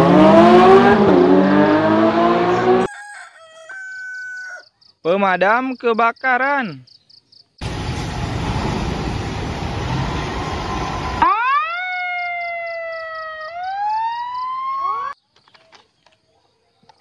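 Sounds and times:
fire truck engine and road noise: 0.0 - 2.9, 7.6 - 11.8
siren wailing: 0.1 - 2.9, 10.4 - 15.2.

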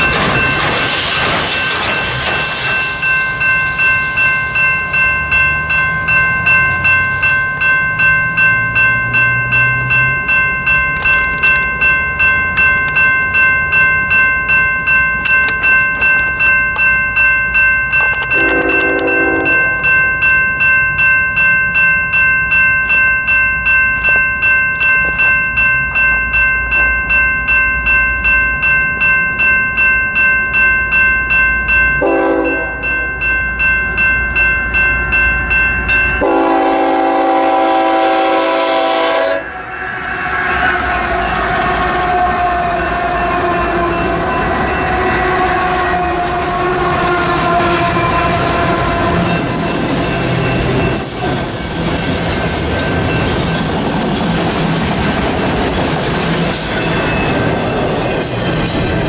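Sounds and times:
train rumbling past: 0.0 - 16.9, 18.3 - 21.8, 31.3 - 59.0
crossing bell ringing: 0.0 - 59.0
locomotive horn blasts: 18.4 - 19.8, 32.0 - 32.8, 36.2 - 39.6, 40.2 - 44.3, 44.9 - 49.5.

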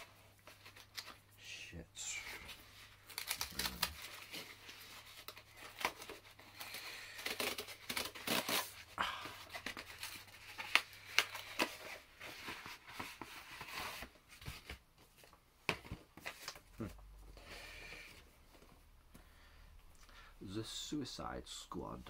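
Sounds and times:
cardboard tearing and crinkling: 2.1 - 14.7.

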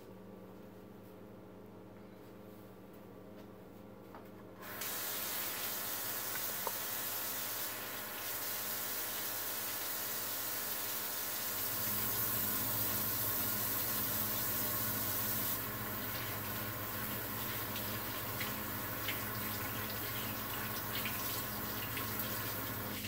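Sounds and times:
tap water running into sink: 4.6 - 23.0.

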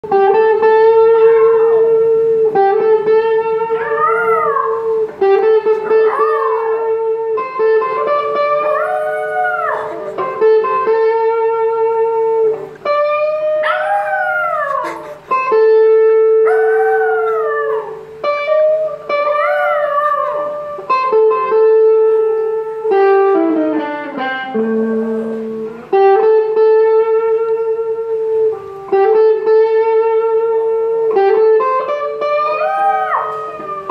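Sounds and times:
lead guitar notes: 0.0 - 33.9
small dog howling: 1.1 - 2.6, 3.2 - 11.4, 13.2 - 23.4, 31.9 - 33.9.

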